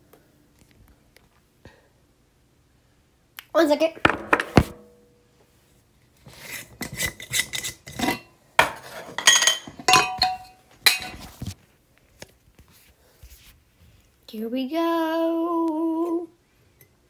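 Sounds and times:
glass jar and lid clinking: 6.9 - 11.2.

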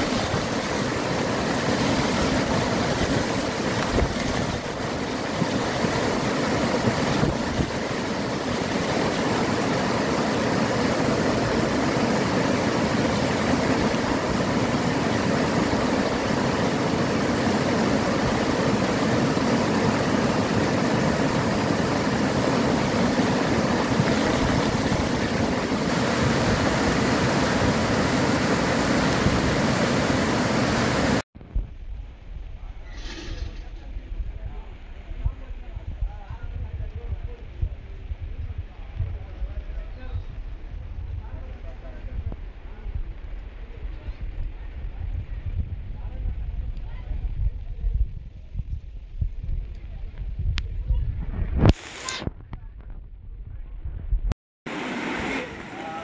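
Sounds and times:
floodwater rushing: 0.0 - 31.2, 54.7 - 56.0.

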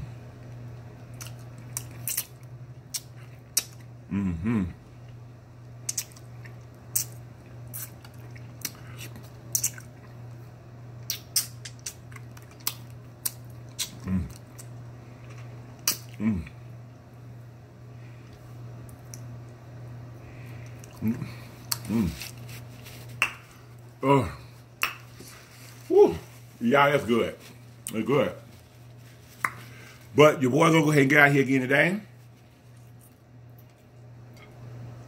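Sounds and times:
person chewing with mouth smacks: 0.4 - 3.9, 5.8 - 10.4, 11.0 - 16.6, 20.4 - 23.8, 28.8 - 30.1
person humming with enjoyment: 4.1 - 4.8, 14.0 - 14.4, 16.2 - 16.6, 25.8 - 26.3.

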